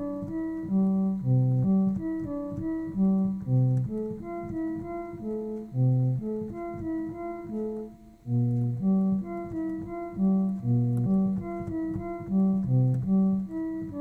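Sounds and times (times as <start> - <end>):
synthesizer cello-like melody: 0.0 - 14.0.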